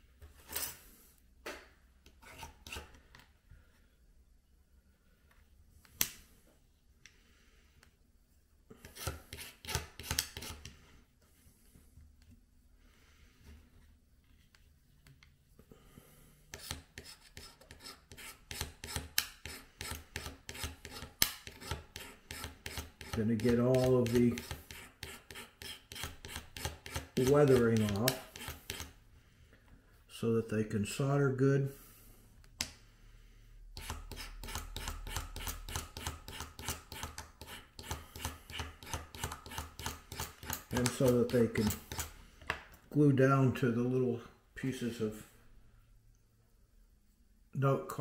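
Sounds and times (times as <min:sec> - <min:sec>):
hobby knife scraping metal rail: 0:16.5 - 0:28.9, 0:33.8 - 0:42.1.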